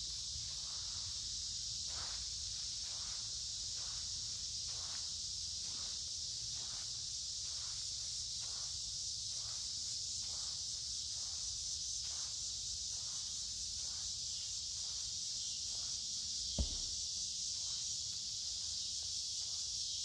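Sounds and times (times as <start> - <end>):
cicadas droning: 0.0 - 20.0
footsteps on sandy pebbly ground: 16.6 - 17.0.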